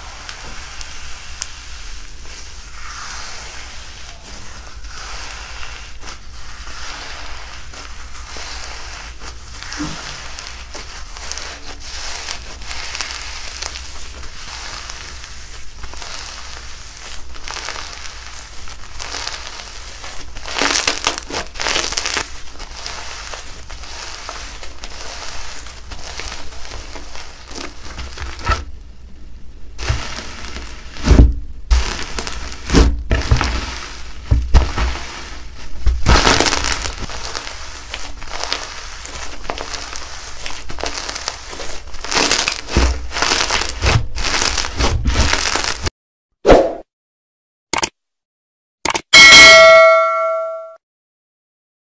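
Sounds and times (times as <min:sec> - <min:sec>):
crunchy slime crackling: 0:00.0 - 0:28.7, 0:29.7 - 0:45.9.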